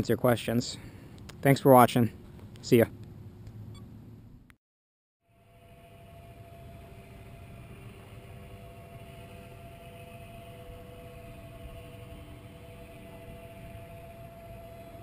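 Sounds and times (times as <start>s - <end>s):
model aircraft motor drone: 5.2s - 15.0s.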